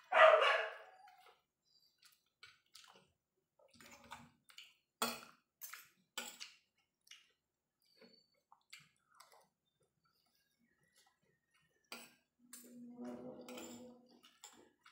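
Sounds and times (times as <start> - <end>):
chewing: 0.9 - 4.9, 5.6 - 12.8
cutlery scraping on a plate: 11.9 - 14.9.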